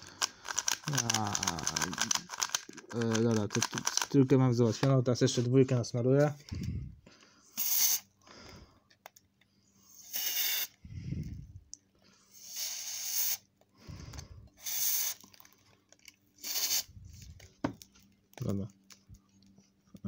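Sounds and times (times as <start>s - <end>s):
aerosol spray hissing: 7.6s - 8.0s, 10.0s - 10.7s, 12.4s - 13.4s, 14.6s - 15.2s, 16.4s - 16.9s.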